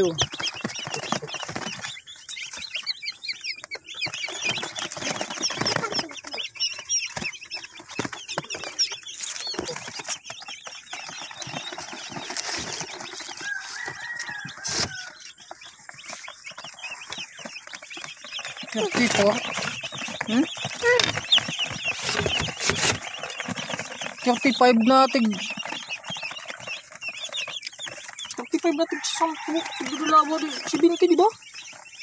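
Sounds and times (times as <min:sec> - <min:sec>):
chicks peeping: 0:00.0 - 0:32.0
rustles and knocks: 0:06.8 - 0:24.2.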